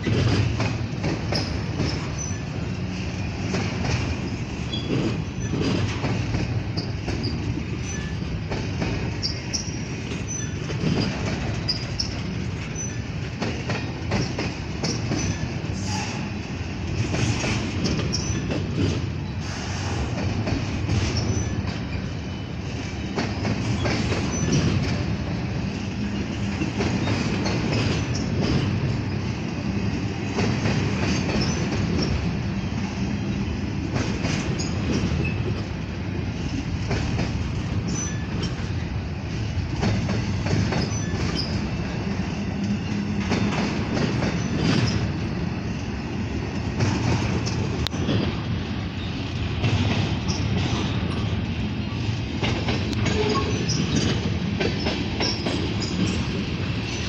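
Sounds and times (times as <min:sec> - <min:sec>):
train clatter: 0:00.0 - 0:57.0
train wheels rumbling on rail: 0:00.0 - 0:57.0
high wheel squeals: 0:06.7 - 0:13.1, 0:40.7 - 0:41.7, 0:53.0 - 0:57.0.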